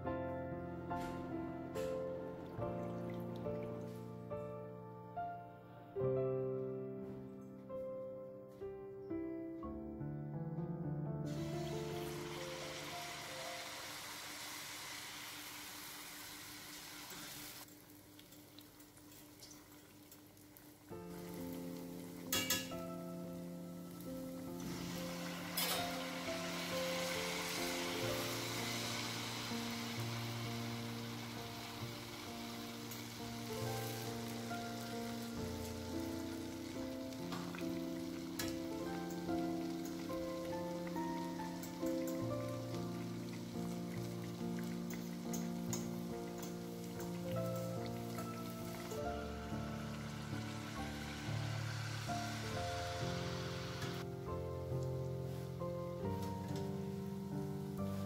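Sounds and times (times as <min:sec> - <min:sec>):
instrumental background music: 0:00.0 - 0:14.1, 0:20.9 - 0:58.0
batter deep-frying in oil: 0:11.3 - 0:58.0
oil crackling and popping: 0:12.0 - 0:22.8.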